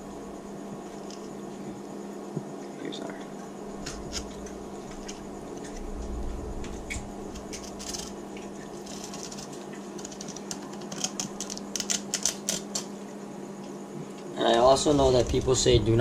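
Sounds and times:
low hum: 0:03.4 - 0:09.4.

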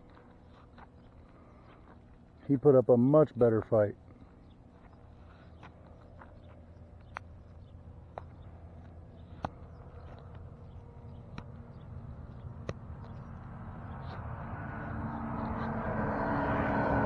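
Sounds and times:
low rumble: 0:09.7 - 0:17.0.

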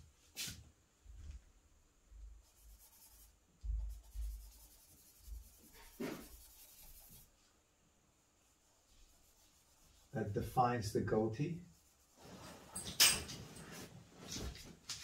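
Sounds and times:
charcoal scratching on paper: 0:02.4 - 0:07.3, 0:08.6 - 0:10.2, 0:11.6 - 0:12.3
dull low thumps: 0:03.6 - 0:04.4.

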